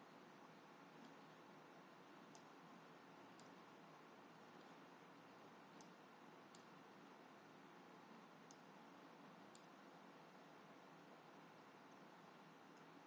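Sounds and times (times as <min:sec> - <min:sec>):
faint steady hiss: 0:00.0 - 0:13.0
computer mouse clicks: 0:01.0 - 0:01.3, 0:02.3 - 0:02.6, 0:03.3 - 0:03.6, 0:04.6 - 0:04.8, 0:05.7 - 0:06.8, 0:08.4 - 0:08.7, 0:09.5 - 0:09.8.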